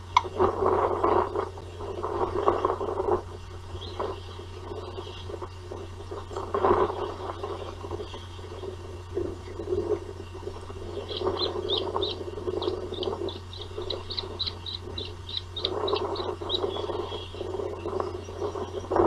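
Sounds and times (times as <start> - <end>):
rustling noise: 0.0 - 8.1
steady low hum: 0.0 - 19.0
osprey calling: 3.6 - 19.0.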